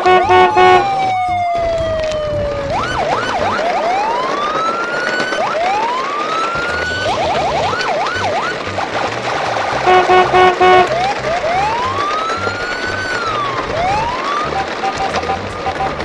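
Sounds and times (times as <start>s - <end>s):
electronic police siren: 0.0s - 9.2s, 9.8s - 16.0s.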